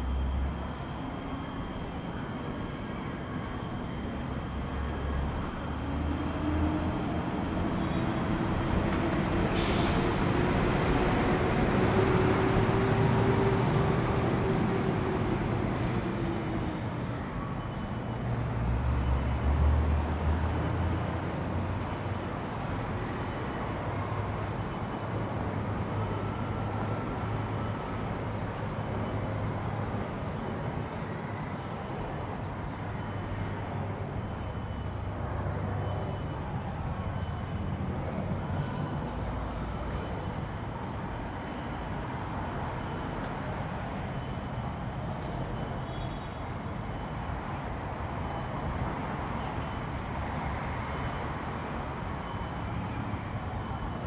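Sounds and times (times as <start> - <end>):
distant traffic rumble: 3.7 - 17.4.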